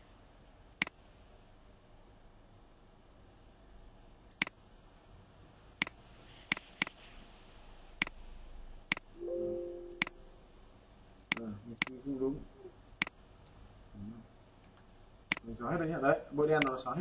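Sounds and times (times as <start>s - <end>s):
computer mouse clicking: 4.3s - 4.6s, 5.8s - 7.0s, 14.6s - 15.5s.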